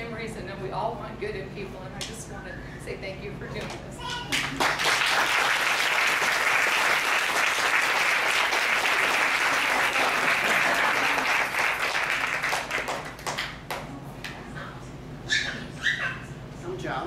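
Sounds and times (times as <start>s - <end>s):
audience applauding: 4.3s - 13.9s.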